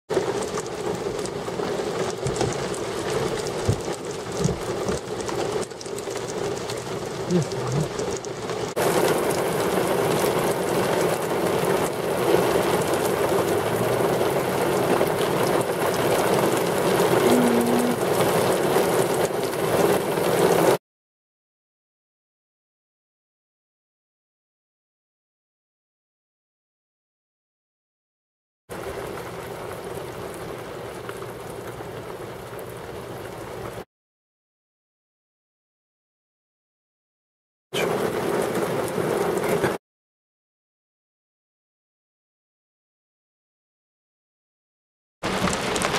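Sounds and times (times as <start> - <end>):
steady rain hiss: 0.1 - 20.8, 28.7 - 33.8, 37.8 - 39.8, 45.2 - 45.9.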